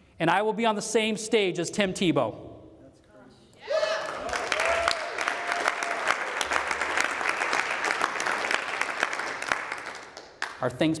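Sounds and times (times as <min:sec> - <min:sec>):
person whooping: 0:03.6 - 0:06.2
audience clapping: 0:04.0 - 0:11.0.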